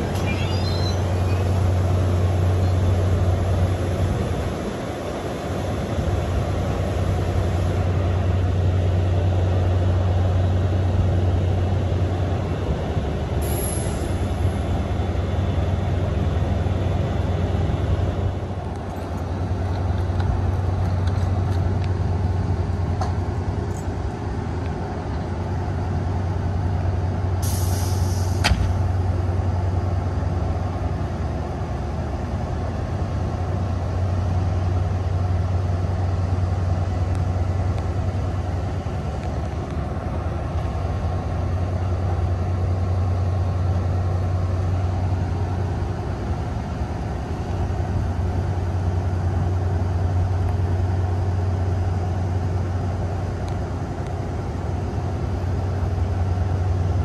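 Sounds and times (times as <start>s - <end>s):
locomotive diesel engine idling: 0.0s - 57.0s
air release hiss: 13.4s - 14.5s, 27.4s - 28.8s.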